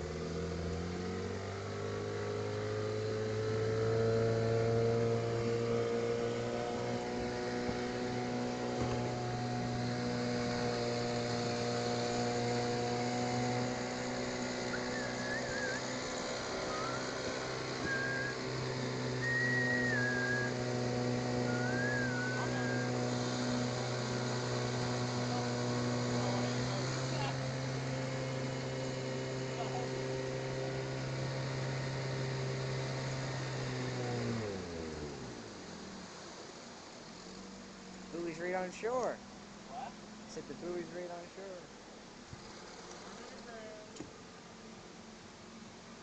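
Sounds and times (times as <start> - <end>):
outboard motor running: 0.0 - 46.0
person whistling: 14.7 - 16.0, 16.6 - 17.2, 17.8 - 18.5, 19.2 - 20.6, 21.4 - 23.0.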